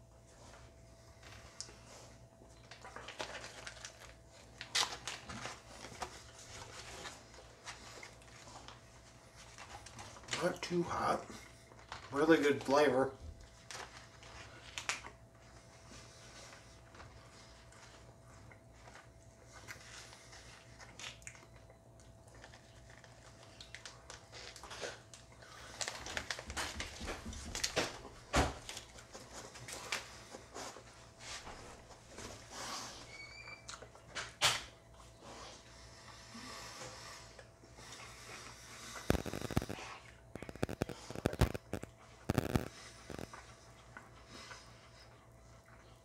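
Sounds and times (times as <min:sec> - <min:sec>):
faint steady hum: 0:00.0 - 0:46.0
man chewing: 0:00.3 - 0:10.6, 0:13.4 - 0:27.8, 0:28.6 - 0:46.0
plastic bag crinkling: 0:02.6 - 0:08.8, 0:22.4 - 0:28.0, 0:39.0 - 0:43.3.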